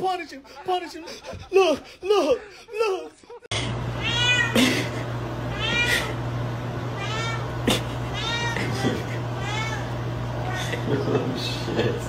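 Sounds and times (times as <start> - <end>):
cat meowing: 4.0 - 4.6, 5.5 - 6.2, 7.0 - 10.7.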